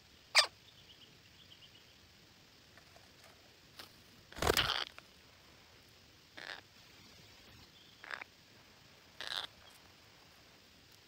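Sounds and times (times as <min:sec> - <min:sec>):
faint chirps: 0:00.0 - 0:02.3, 0:04.5 - 0:11.0
parakeets squawking: 0:00.3 - 0:00.5, 0:04.4 - 0:04.9, 0:06.4 - 0:06.6, 0:08.0 - 0:08.3, 0:09.2 - 0:09.6.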